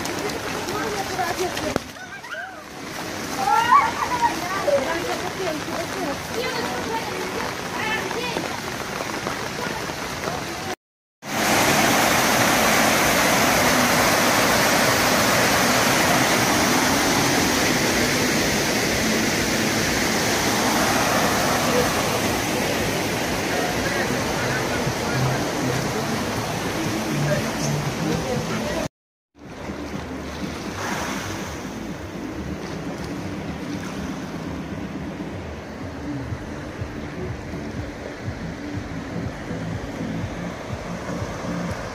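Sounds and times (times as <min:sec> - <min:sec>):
water rushing down stone steps: 0:00.0 - 0:34.0
sea waves washing on shore: 0:00.0 - 0:41.9.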